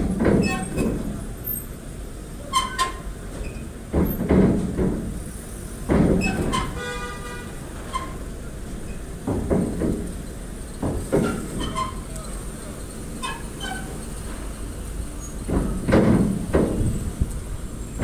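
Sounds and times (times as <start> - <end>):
vehicles rumbling and thudding: 0.0 - 18.0
metal clanks: 10.8 - 12.3, 15.2 - 17.3.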